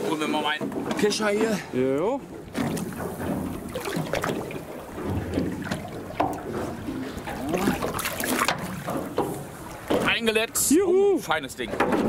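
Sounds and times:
water lapping against boat: 0.0s - 12.0s
sharp splashes: 2.4s - 10.2s.

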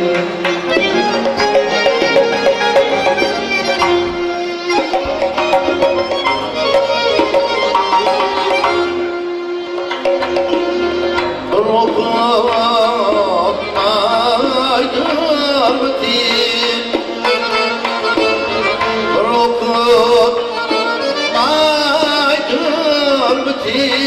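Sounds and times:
accordion: 0.0s - 24.0s
ornamented melody line: 0.0s - 24.0s
plucked lute: 0.0s - 24.0s
frame drum: 0.4s - 9.0s.

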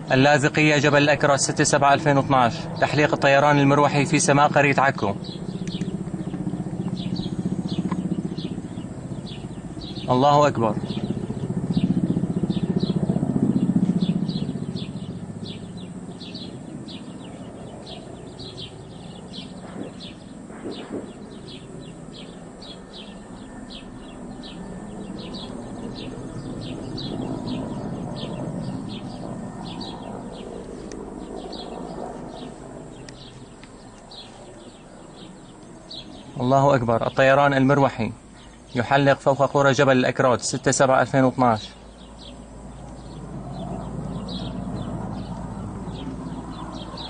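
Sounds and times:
helicopter droning overhead: 0.0s - 47.0s
high chirping: 5.2s - 36.5s.

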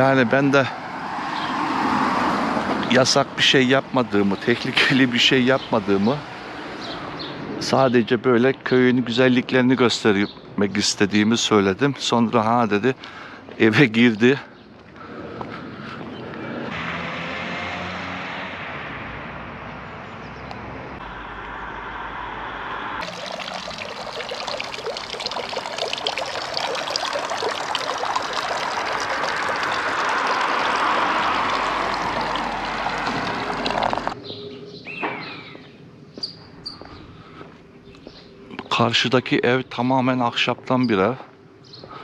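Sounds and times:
fountain water splashing into basin: 23.0s - 34.2s.

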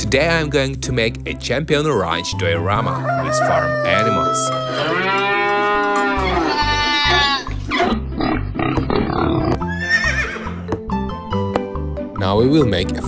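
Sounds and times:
long livestock call: 3.1s - 7.5s.

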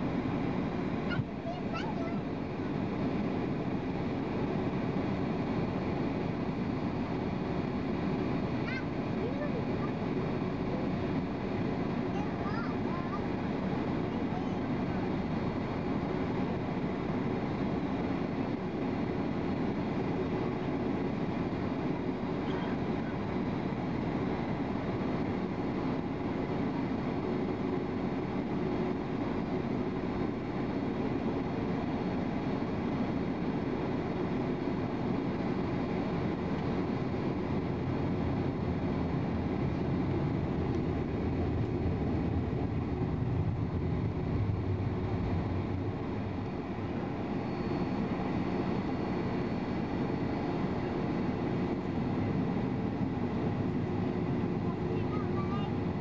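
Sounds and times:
jet engines idling: 0.0s - 56.0s
deep rumble: 36.4s - 48.9s.

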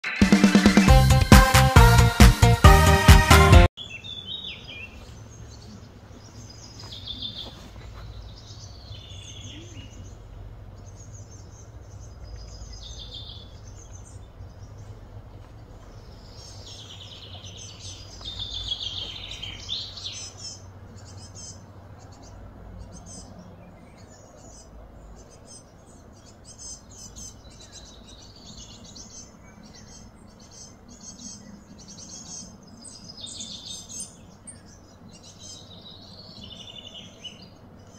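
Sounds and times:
birds chirping: 0.0s - 37.9s
steady low hum: 7.7s - 28.2s.

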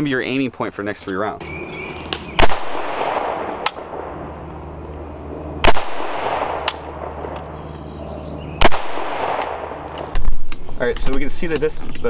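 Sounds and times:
rifle shot with echo: 2.2s - 4.7s, 5.5s - 7.6s, 8.5s - 10.3s.

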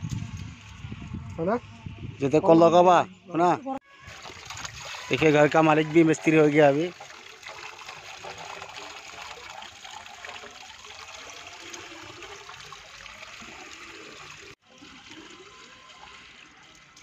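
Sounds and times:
water pouring and splashing: 3.9s - 17.0s.

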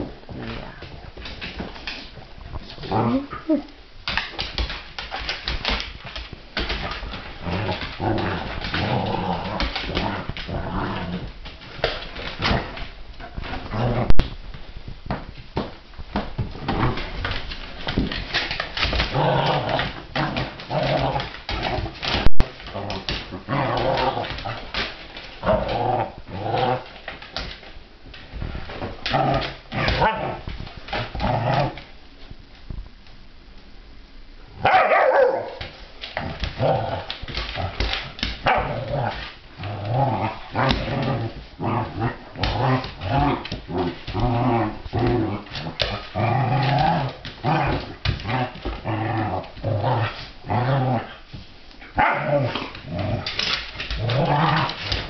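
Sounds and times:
dogs growling: 6.7s - 14.2s, 18.1s - 27.3s, 28.8s - 31.9s, 36.0s - 51.3s, 51.9s - 55.0s
dog barking: 34.6s - 35.6s.

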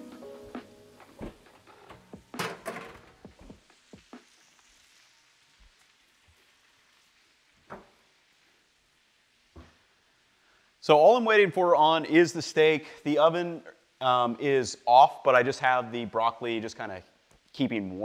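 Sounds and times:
metal pan clanking: 1.9s - 3.3s
steaks sizzling in a pan: 2.0s - 10.4s.

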